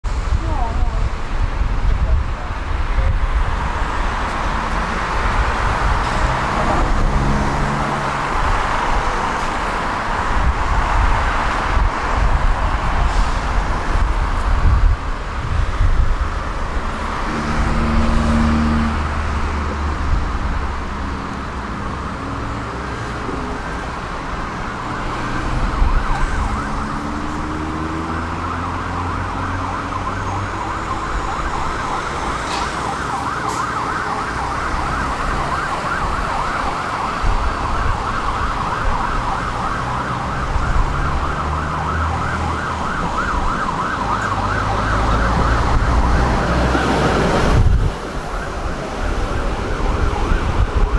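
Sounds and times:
tram rolling: 0.0 - 37.7
road traffic: 0.0 - 50.9
emergency siren wailing: 16.4 - 50.9.

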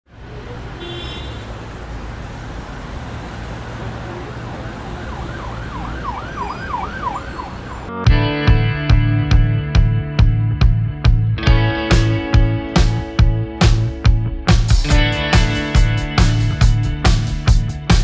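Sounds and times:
city traffic noise: 0.0 - 8.5, 11.4 - 18.0
emergency vehicle siren: 4.0 - 8.0
loud music with strong beat: 8.0 - 18.0.

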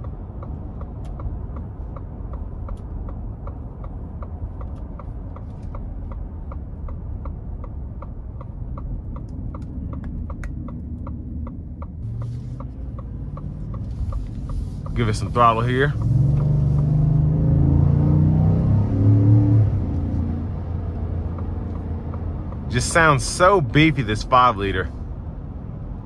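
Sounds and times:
engine and road rumble: 0.0 - 26.0
turn signal ticking: 0.0 - 26.0.

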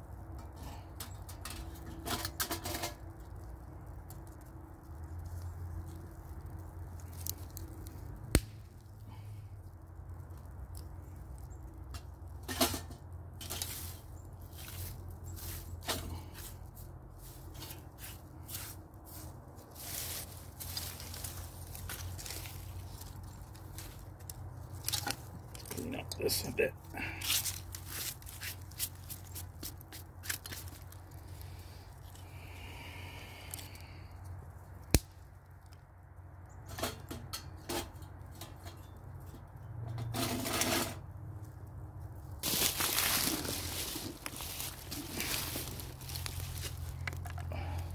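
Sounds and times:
hands rustling sticks and tinder: 0.0 - 36.0, 41.4 - 47.9
twig fire crackling: 0.0 - 39.3, 41.0 - 47.9.

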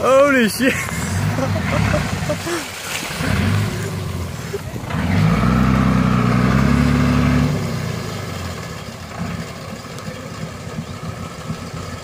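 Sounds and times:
truck engine pulling hard: 0.0 - 12.0
truck wading through water: 0.0 - 12.0.

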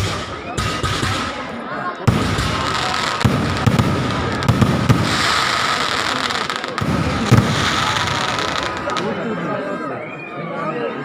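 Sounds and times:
sharp firework reports: 0.0 - 9.3
crackle of sparks: 2.2 - 9.1.

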